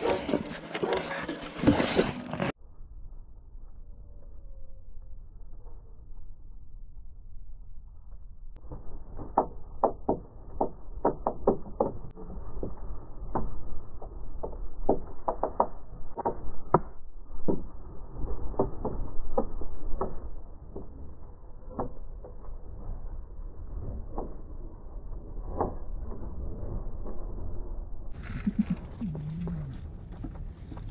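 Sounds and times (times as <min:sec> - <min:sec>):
low rumble: 0:15.8 - 0:30.9.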